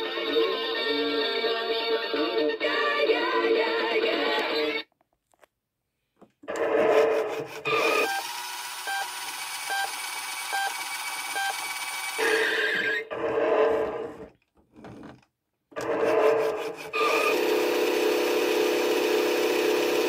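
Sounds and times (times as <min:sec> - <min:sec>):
electronic rasping sound: 0:06.4 - 0:08.2
toy car rolling on wood: 0:06.5 - 0:17.7.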